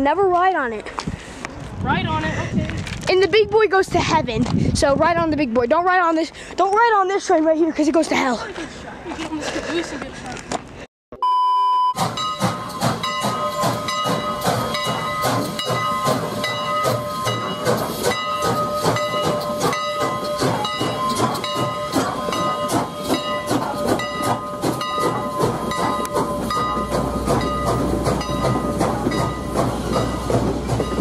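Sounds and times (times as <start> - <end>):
steam hissing: 12.0 - 31.0
steam locomotive chuffing: 12.0 - 31.0
train cars rumbling past: 12.0 - 31.0
steady ringing tone: 12.2 - 31.0.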